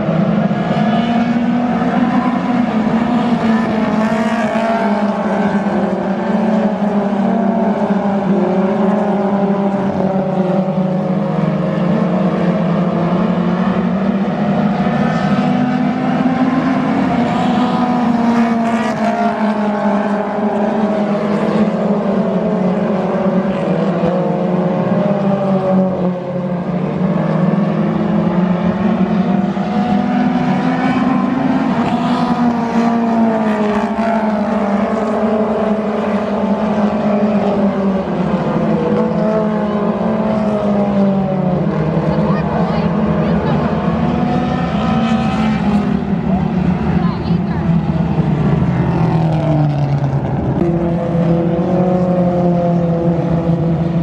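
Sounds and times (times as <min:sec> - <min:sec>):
race car engines roaring: 0:00.0 - 0:54.0.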